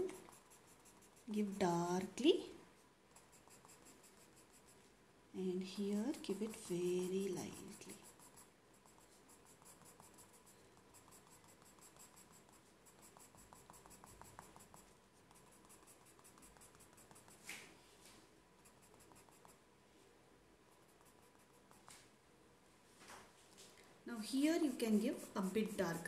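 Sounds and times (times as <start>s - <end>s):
pencil scratching on paper: 0.0s - 2.2s, 3.1s - 4.9s, 5.7s - 17.5s, 18.6s - 19.6s, 20.7s - 22.0s, 24.2s - 26.0s.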